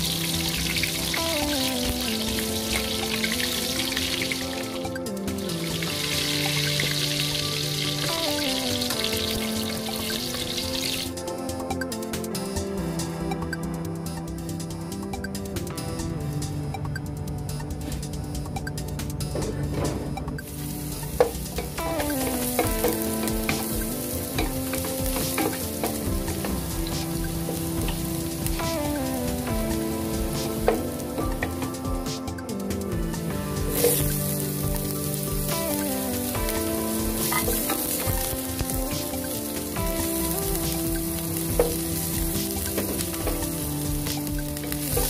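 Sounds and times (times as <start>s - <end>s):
garlic sizzling in hot oil: 0.0s - 11.3s, 20.4s - 45.0s
slow melodic background music: 0.0s - 45.0s
spatula tapping pan: 21.1s - 28.6s.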